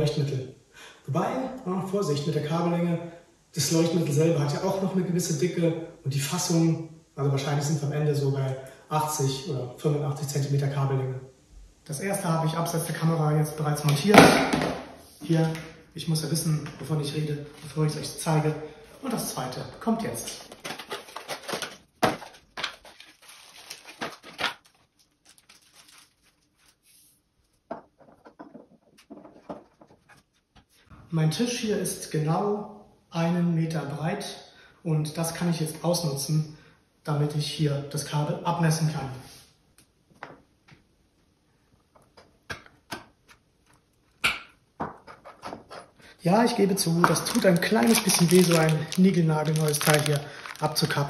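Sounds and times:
cable rustling and clicking: 20.2 - 26.7, 46.9 - 51.0.

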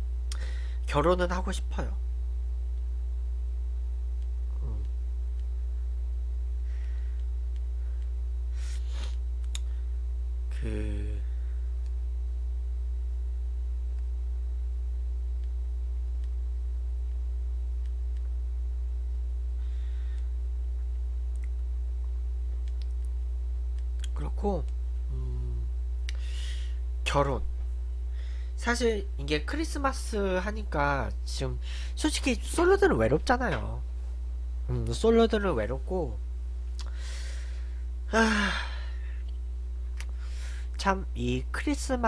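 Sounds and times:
low electrical hum: 0.0 - 42.0.

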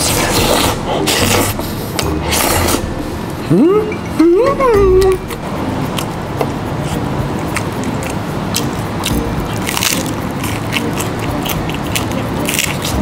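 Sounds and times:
crab being chewed: 5.0 - 13.0.

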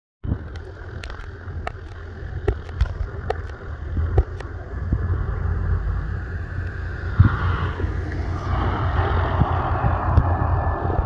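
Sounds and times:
jet airliner engines rumbling: 0.2 - 11.0
wind rumble on microphone: 0.2 - 11.0
sharp clicks: 0.4 - 5.0.

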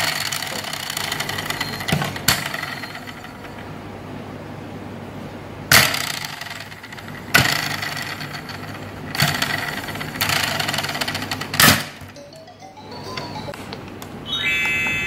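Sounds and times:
toy roller rapid clicking: 0.0 - 3.7, 5.7 - 12.3.

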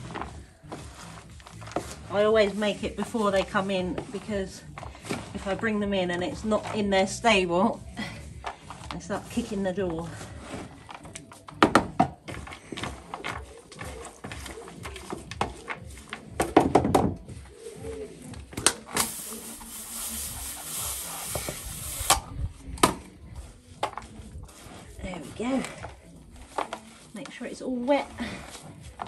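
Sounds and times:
hose nozzle spraying water: 18.9 - 22.3.

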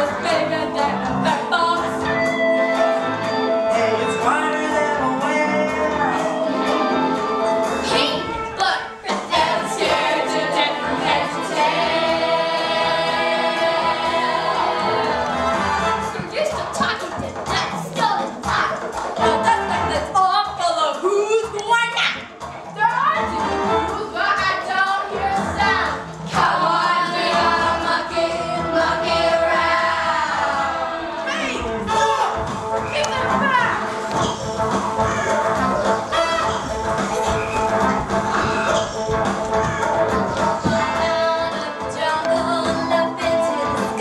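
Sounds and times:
children's chorus singing: 7.8 - 16.2, 23.9 - 31.3, 34.1 - 44.0.

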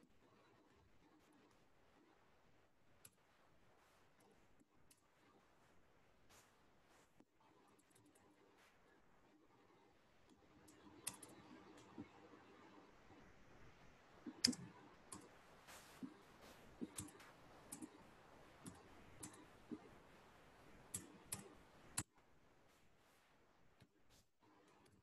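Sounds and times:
mouse and keyboard clicks: 10.3 - 13.2, 14.2 - 20.0, 20.8 - 22.1.

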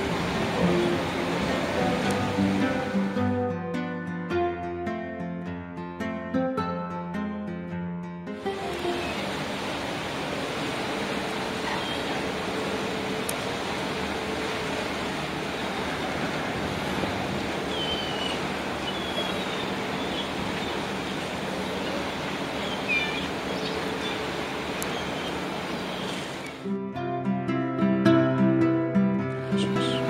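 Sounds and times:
wind over water: 0.0 - 3.3, 8.5 - 26.6
distant boat traffic: 0.0 - 3.4, 8.4 - 26.6, 29.4 - 30.0.

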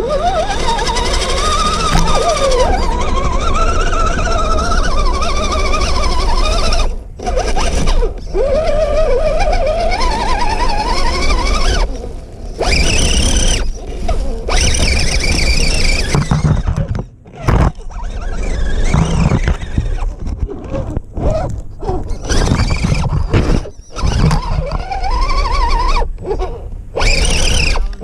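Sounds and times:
electric motor and gears whining: 0.0 - 28.0.

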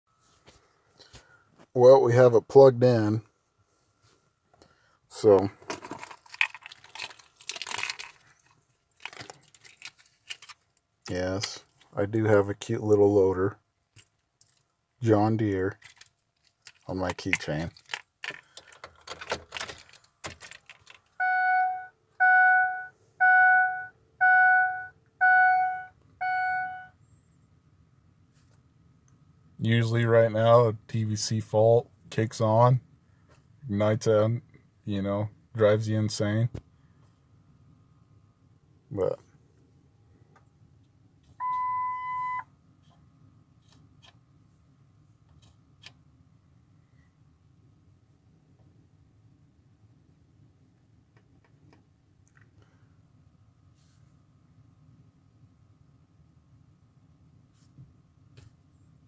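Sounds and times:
key turning in ignition: 15.8 - 21.2
dashboard warning chime: 21.2 - 27.0, 41.4 - 42.5.

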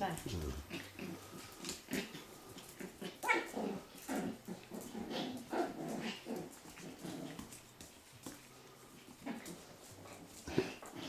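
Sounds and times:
dogs growling and barking: 0.1 - 11.0.

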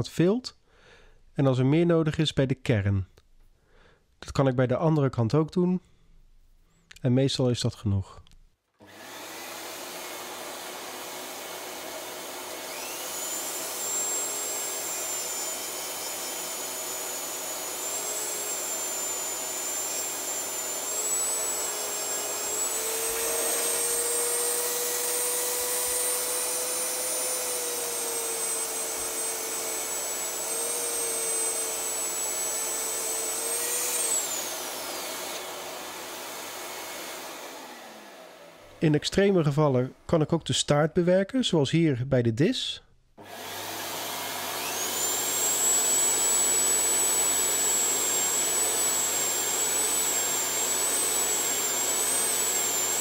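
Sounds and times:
rotary tool whining: 8.8 - 38.8, 43.2 - 53.0.

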